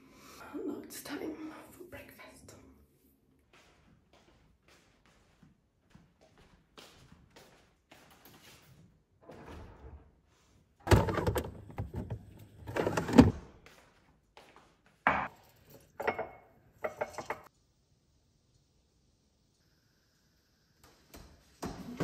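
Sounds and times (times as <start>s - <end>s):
cupboard door opening: 10.8s - 13.4s
crockery clattering: 15.1s - 17.5s.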